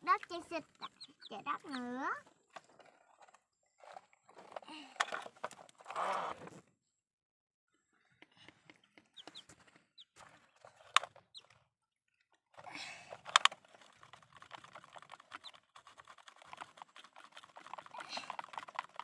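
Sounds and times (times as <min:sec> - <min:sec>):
plastic toy clicks and knocks: 0:13.1 - 0:19.0
wet mud scraping: 0:13.4 - 0:19.0.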